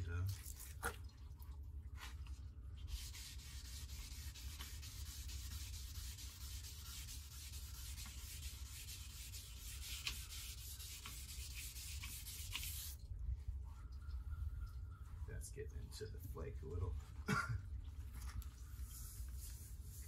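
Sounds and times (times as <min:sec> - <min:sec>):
sandpaper rubbing on metal: 0:02.9 - 0:13.0.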